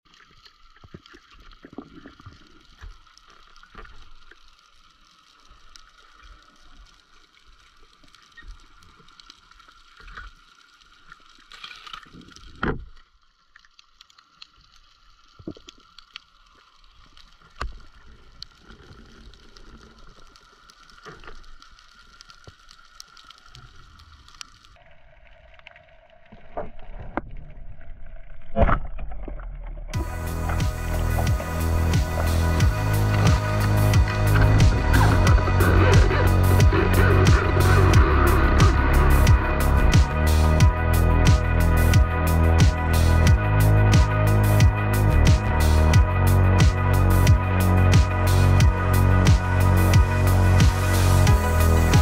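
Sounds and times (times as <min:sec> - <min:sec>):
underwater hiss: 0:30.0 - 0:42.0
high steady hum: 0:30.0 - 0:46.4.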